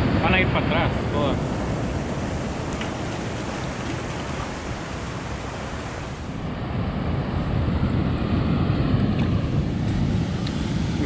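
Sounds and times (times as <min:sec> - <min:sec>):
ocean surf over rocks: 0:00.0 - 0:06.9
wind rumbling on microphone: 0:00.0 - 0:11.0.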